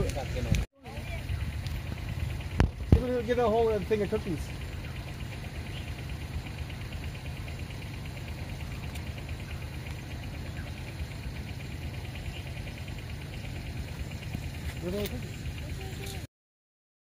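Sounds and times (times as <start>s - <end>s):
vehicle engine idling: 0.0s - 16.3s.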